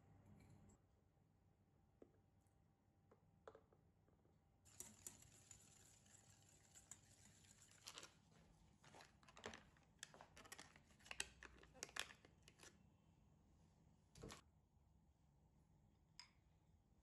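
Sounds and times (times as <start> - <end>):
metal spoon stirring in bowl: 4.7 - 8.2.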